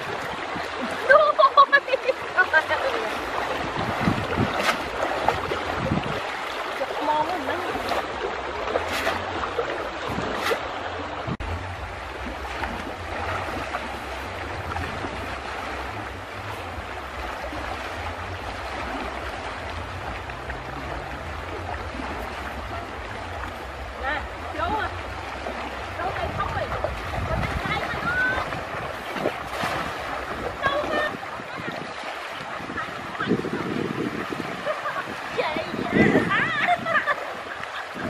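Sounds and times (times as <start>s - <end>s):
river water rushing over stones: 0.0s - 38.0s
water splashes: 0.0s - 38.0s.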